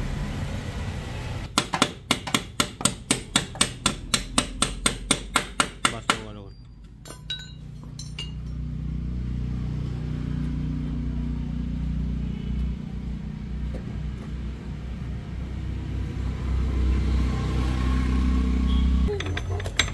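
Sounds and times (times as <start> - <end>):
engine low rumble: 0.0 - 1.5, 6.5 - 19.9.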